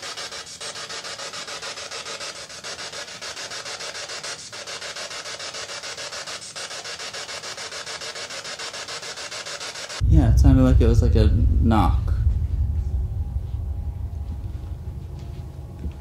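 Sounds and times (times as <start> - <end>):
pulsing static hiss: 9.7 - 16.0.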